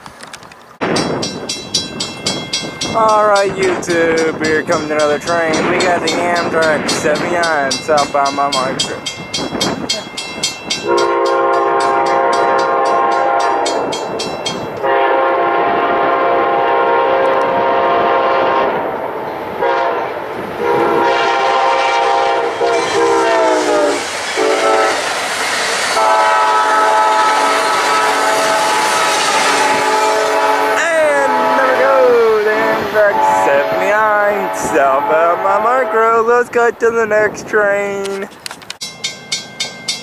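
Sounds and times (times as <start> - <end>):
rapid high ringing bell: 0.9 - 4.4, 5.0 - 14.7, 38.8 - 40.0
train horn blasts: 10.8 - 14.1, 14.8 - 19.0, 19.6 - 25.1, 26.0 - 36.2.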